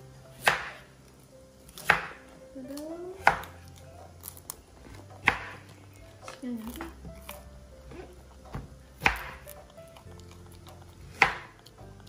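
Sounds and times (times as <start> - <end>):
cleaver chopping on wooden board: 0.4 - 0.8, 1.7 - 2.2, 3.2 - 3.6, 5.2 - 5.6, 6.8 - 9.6, 11.1 - 11.6.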